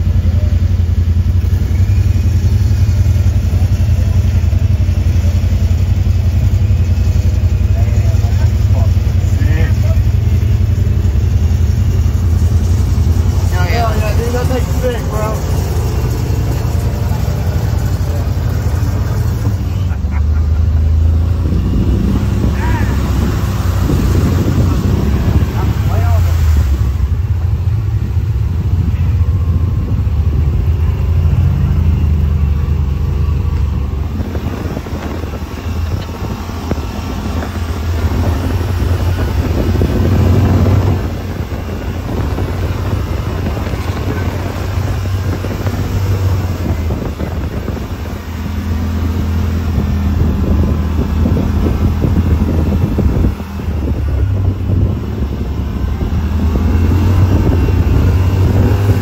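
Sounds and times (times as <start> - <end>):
vehicle engine running: 0.0 - 59.0
wind buffeting microphone: 0.0 - 59.0.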